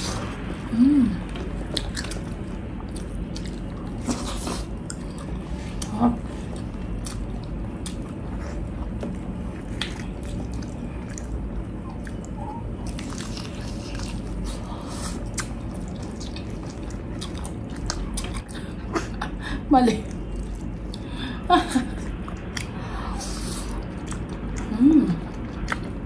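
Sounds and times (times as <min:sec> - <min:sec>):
biting and chewing food: 0:01.3 - 0:18.6.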